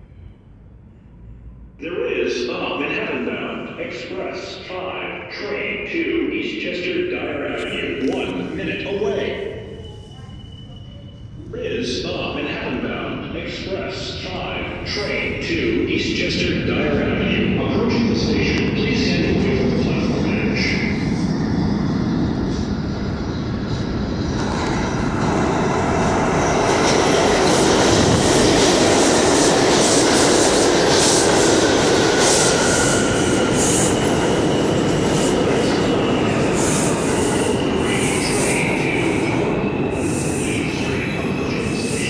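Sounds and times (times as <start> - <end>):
subway train wheels rumbling on rail: 0.0 - 42.0
high wheel squeal: 9.2 - 11.5.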